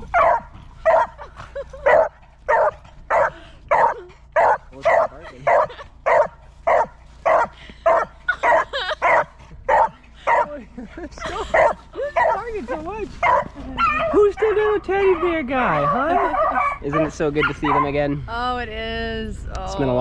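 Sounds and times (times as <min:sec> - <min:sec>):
dog barking: 0:00.1 - 0:01.2, 0:01.8 - 0:10.6, 0:11.5 - 0:12.5, 0:13.2 - 0:18.0.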